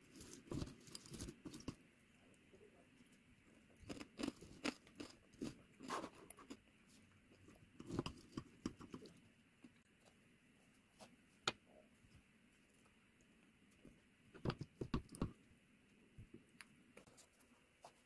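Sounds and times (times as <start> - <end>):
crunchy chewing: 3.7 - 9.2.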